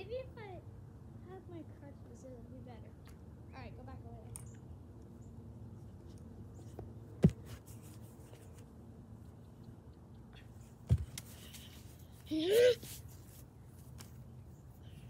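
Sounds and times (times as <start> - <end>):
faint outdoor background: 0.0 - 15.0
short dull thumps: 7.2 - 7.7.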